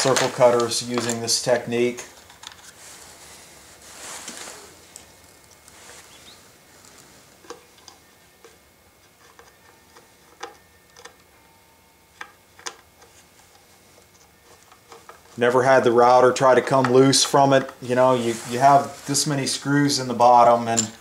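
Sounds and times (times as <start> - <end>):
handling rustle: 0.0 - 7.9, 16.6 - 21.0.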